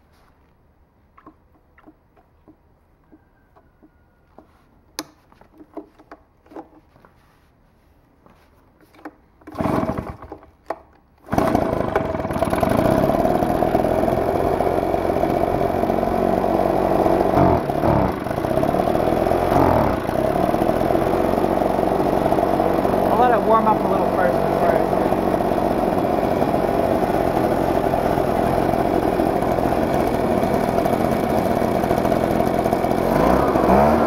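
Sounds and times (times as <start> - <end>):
recoil starter pull: 9.4 - 34.0
blower engine running: 9.5 - 10.4, 11.3 - 34.0.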